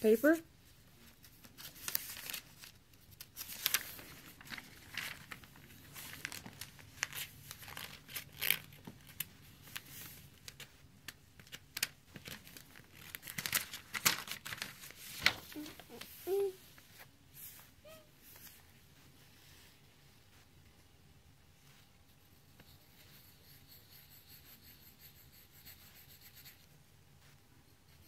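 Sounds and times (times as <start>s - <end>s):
paper rustling and sliding: 1.0s - 10.8s, 11.4s - 20.5s.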